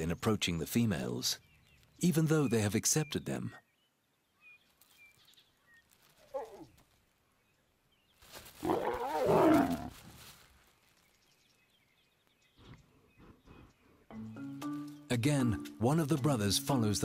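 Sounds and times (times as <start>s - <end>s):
lions growling: 8.6s - 9.9s.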